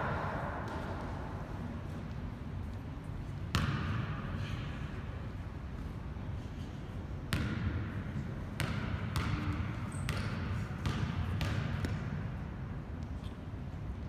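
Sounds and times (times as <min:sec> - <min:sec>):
basketball bouncing on gym floor: 0:03.4 - 0:04.2, 0:07.3 - 0:13.1.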